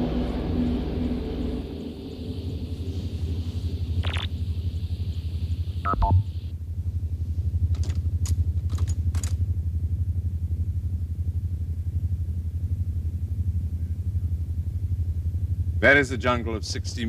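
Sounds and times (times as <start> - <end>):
throbbing electronic hum: 0.0 - 17.0
faint high chirps: 4.0 - 6.5.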